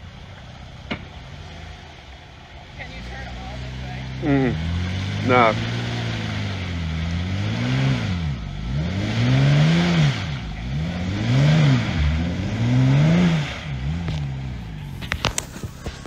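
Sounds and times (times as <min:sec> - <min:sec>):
tires spinning in mud: 0:00.0 - 0:16.0
engine revving hard: 0:02.8 - 0:14.8.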